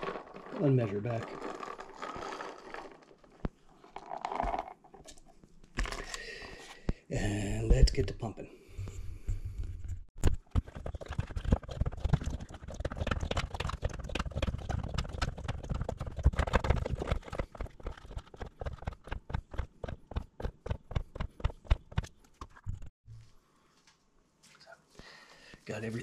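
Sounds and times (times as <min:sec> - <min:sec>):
plastic hand pump clacking: 0:10.6 - 0:22.0.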